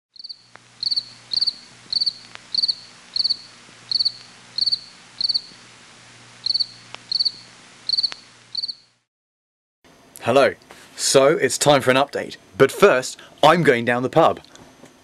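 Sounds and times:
cricket chirping: 0.1 - 5.6, 6.4 - 9.0.

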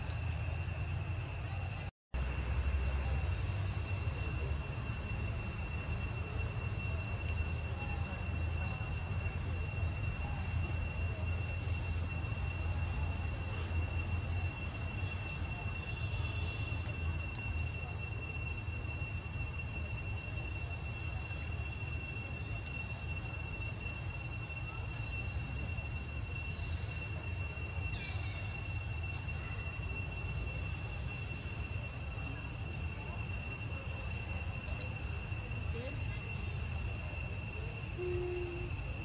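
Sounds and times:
high-pitched insect drone: 0.0 - 39.0.

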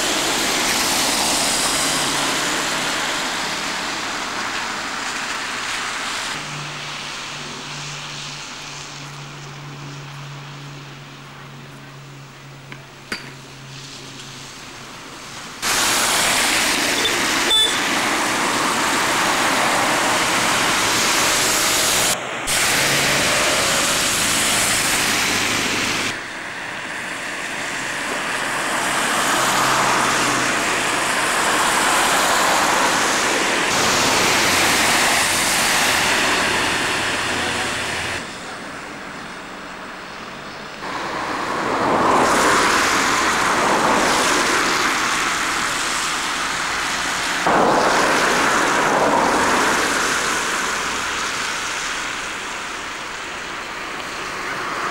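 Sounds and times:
tyres rushing on slush: 0.0 - 11.8, 13.6 - 54.9
car passing: 0.0 - 12.7, 13.3 - 54.9.

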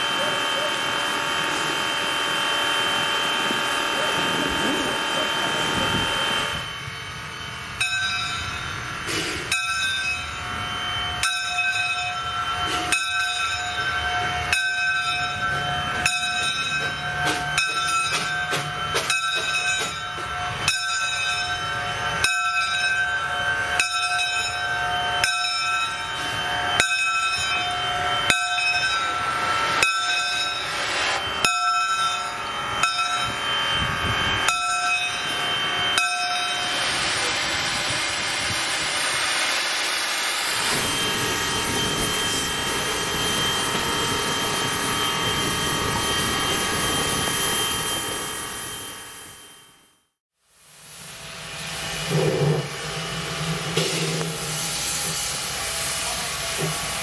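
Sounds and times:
locomotive bell ringing: 0.0 - 39.3, 40.0 - 50.1
steam hissing: 0.0 - 49.4, 50.5 - 57.0
low train running noise: 0.0 - 57.0.

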